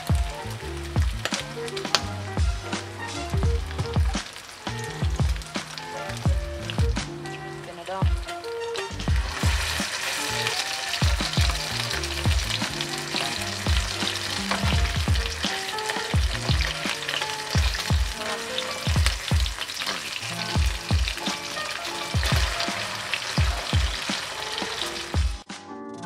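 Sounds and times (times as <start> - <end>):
meat sizzling in hot oil: 0.0 - 25.4
background music with beat and bass: 0.0 - 26.0
spatula scraping a pan: 16.7 - 19.0.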